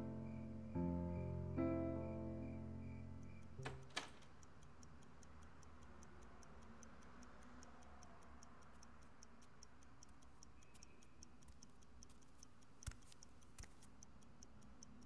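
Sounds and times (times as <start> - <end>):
clock ticking faintly: 1.6 - 15.0
louder clicks: 3.6 - 4.4.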